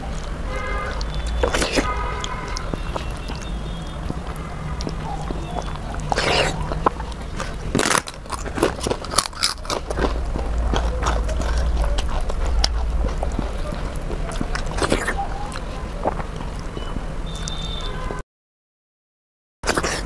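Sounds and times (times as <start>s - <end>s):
fingers mashing soft food: 0.0s - 17.6s
chewing with wet mouth clicks: 0.0s - 18.0s, 19.7s - 20.0s
crackling papad being crumbled: 1.0s - 15.9s.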